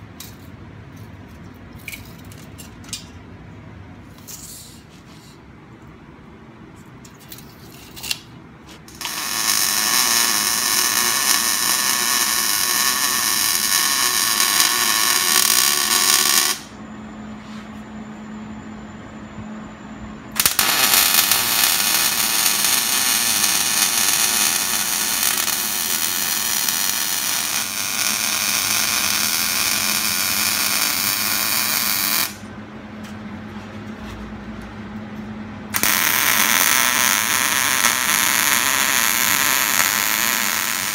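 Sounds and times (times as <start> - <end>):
low steady hum: 0.0 - 40.9
welding arc: 8.9 - 16.8, 20.3 - 32.4, 35.7 - 40.9.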